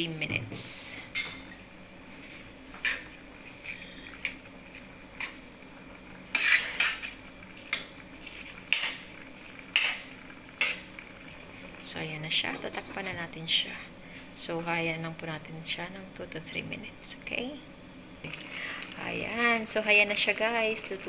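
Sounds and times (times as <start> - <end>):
spoon clinking and scraping a pot: 6.3 - 7.1.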